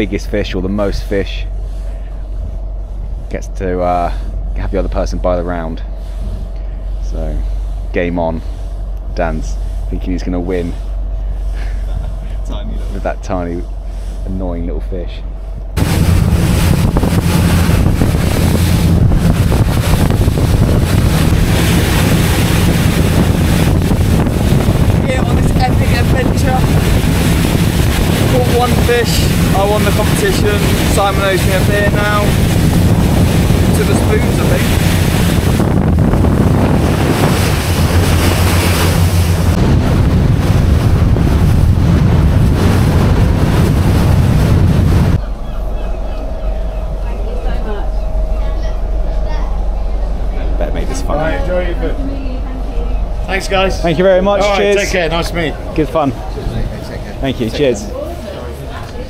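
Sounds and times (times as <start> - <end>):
steady low rumble: 0.0 - 59.0
wind buffeting microphone: 15.0 - 59.0.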